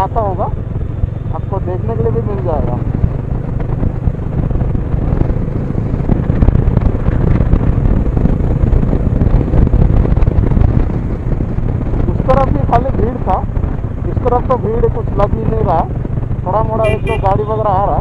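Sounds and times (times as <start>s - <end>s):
motorcycle engine running: 0.0s - 18.0s
wind buffeting microphone: 0.4s - 18.0s.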